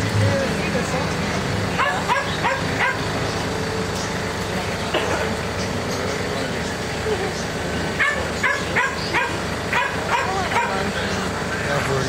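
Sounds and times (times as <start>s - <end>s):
animal yipping: 1.8s - 3.0s, 8.0s - 10.8s.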